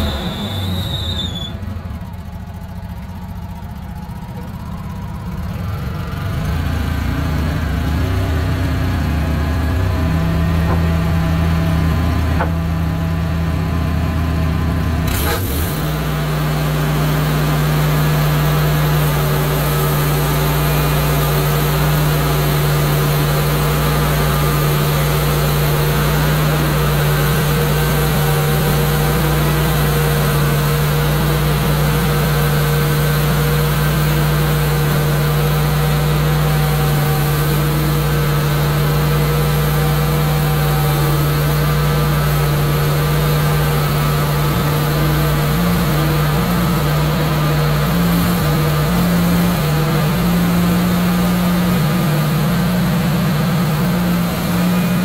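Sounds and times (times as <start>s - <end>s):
sawmill gasoline engine running: 0.0s - 55.0s.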